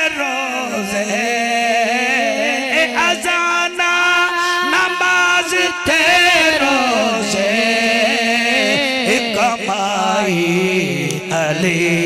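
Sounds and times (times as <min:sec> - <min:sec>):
man chanting devotional poem: 0:00.0 - 0:12.0.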